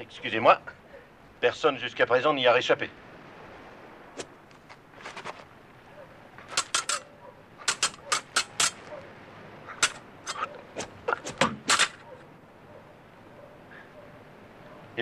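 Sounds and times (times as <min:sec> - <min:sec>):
sword blades clashing: 0:06.5 - 0:08.9, 0:09.7 - 0:12.0.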